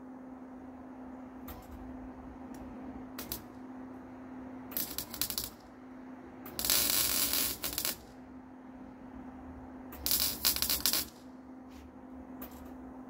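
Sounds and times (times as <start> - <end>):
welder crackling: 2.5 - 3.6, 4.7 - 5.7, 6.4 - 8.2, 9.9 - 11.3.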